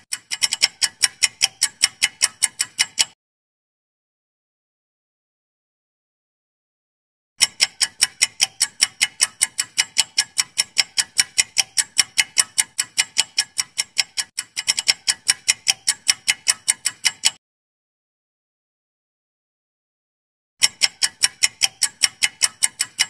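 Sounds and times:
clock ticking rapidly: 0:00.0 - 0:03.2, 0:07.4 - 0:17.4, 0:20.6 - 0:23.0.

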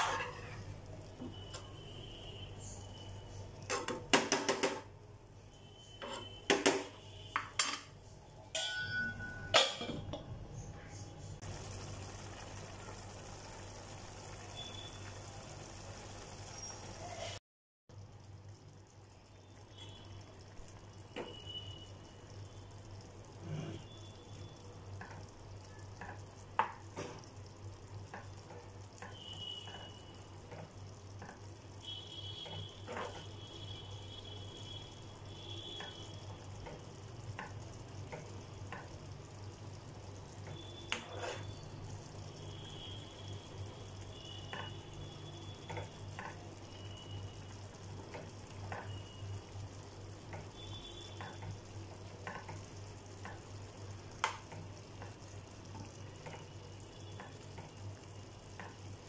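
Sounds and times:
spoon clinking and scraping pan: 0:00.0 - 0:00.6, 0:07.4 - 0:10.2, 0:32.8 - 0:33.2, 0:40.9 - 0:41.6.

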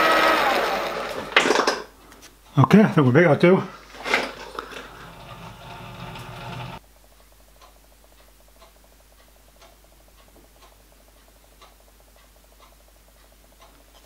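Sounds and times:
milling machine running: 0:00.0 - 0:01.4, 0:04.1 - 0:06.8
faint steady ticking: 0:04.6 - 0:14.0
quieter faster ticking: 0:05.6 - 0:14.0.

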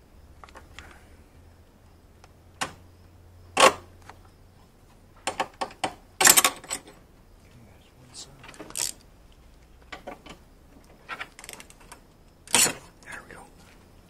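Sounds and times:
metal hardware rattling: 0:05.3 - 0:07.0, 0:08.4 - 0:09.0.

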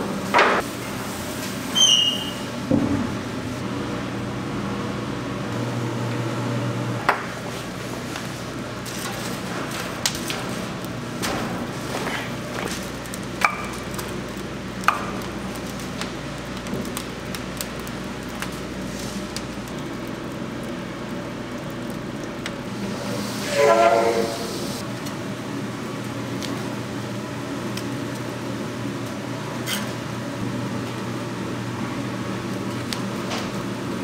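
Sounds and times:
metal lid squealing open: 0:01.7 - 0:02.5, 0:23.4 - 0:24.8.

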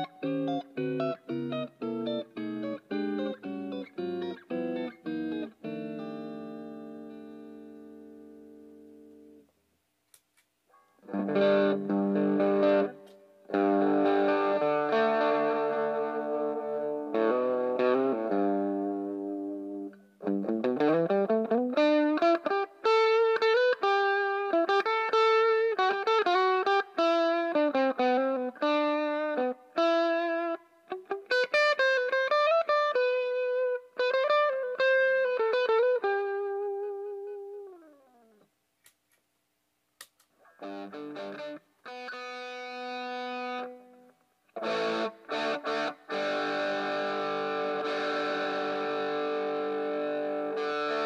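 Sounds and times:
electric guitar lead playing: 0:00.0 - 0:09.4, 0:11.0 - 0:38.4, 0:40.4 - 0:51.0.

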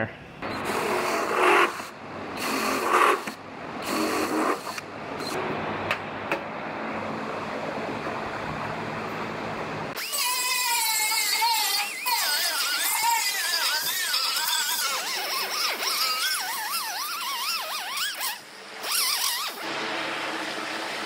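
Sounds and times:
air disc tool whining: 0:00.4 - 0:05.4, 0:09.9 - 0:21.0
cordless drill drilling: 0:00.6 - 0:05.3, 0:10.0 - 0:19.7.

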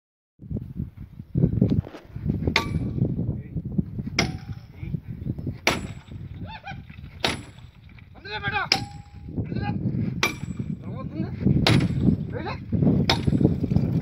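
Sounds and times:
hammer clanging on metal: 0:02.6 - 0:03.0, 0:04.2 - 0:04.8, 0:05.6 - 0:06.3, 0:07.2 - 0:07.8, 0:08.6 - 0:09.3, 0:10.2 - 0:10.8, 0:11.6 - 0:12.3.

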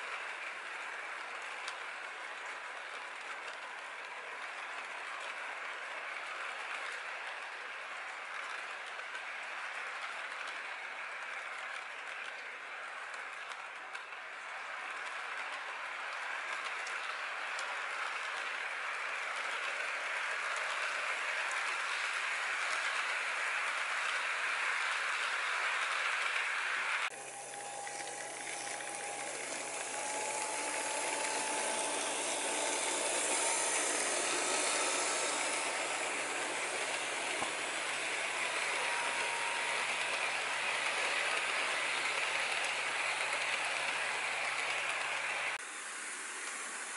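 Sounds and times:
model train wheels rattling on rail: 0:00.0 - 0:46.9.

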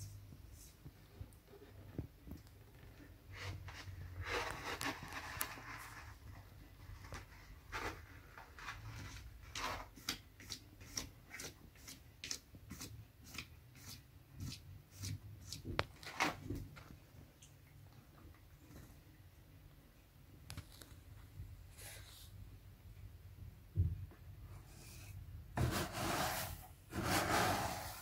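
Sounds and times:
cat scratching litter: 0:03.3 - 0:06.3, 0:07.0 - 0:16.4, 0:25.6 - 0:28.0.

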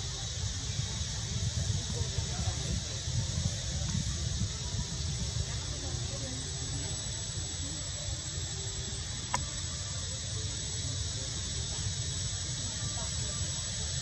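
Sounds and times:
high-pitched hiss: 0:00.0 - 0:14.0
thin whine: 0:00.0 - 0:14.0
sharp click: 0:09.3 - 0:09.5.

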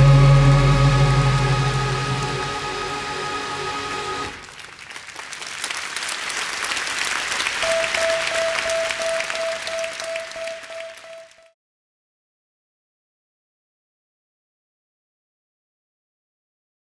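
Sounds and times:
audience applauding: 0:00.7 - 0:11.5.

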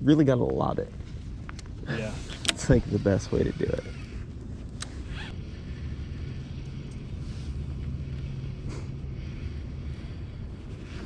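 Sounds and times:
boat motor humming: 0:02.6 - 0:11.0.

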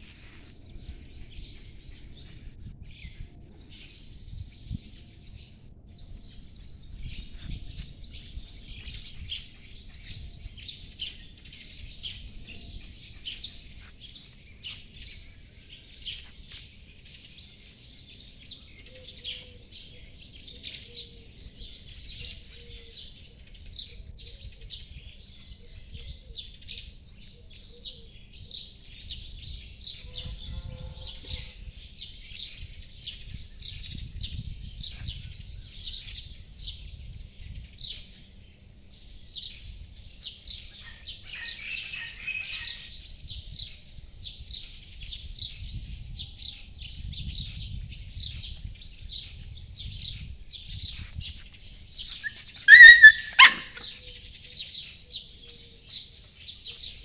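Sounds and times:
small birds chirping: 0:00.0 - 0:57.0
puppy yelping: 0:52.2 - 0:54.0.

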